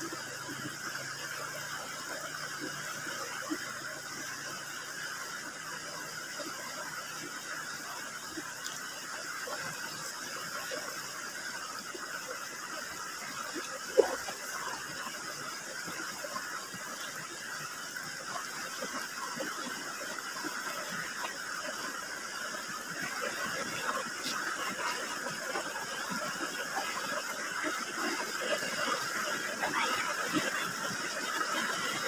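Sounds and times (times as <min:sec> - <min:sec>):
shallow river rushing: 0:09.0 - 0:32.0.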